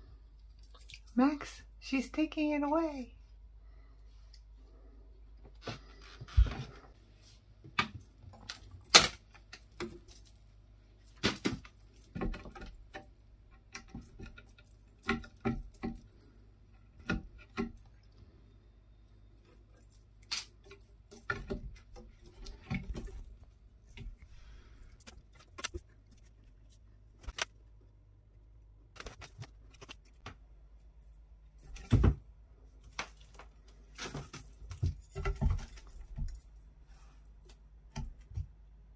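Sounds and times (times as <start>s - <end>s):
small metal bell jingling: 0.0s - 3.2s, 5.1s - 18.4s, 19.3s - 23.5s, 33.7s - 37.6s.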